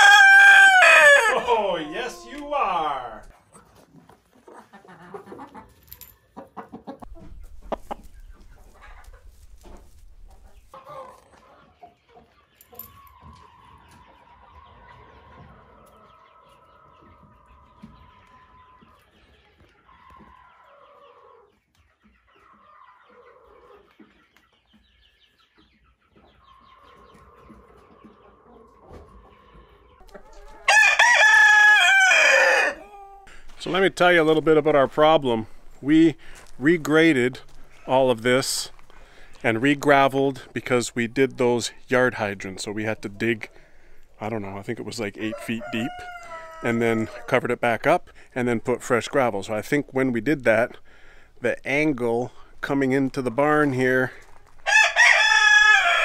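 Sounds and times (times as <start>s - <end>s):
chickens clucking: 0.0s - 56.0s.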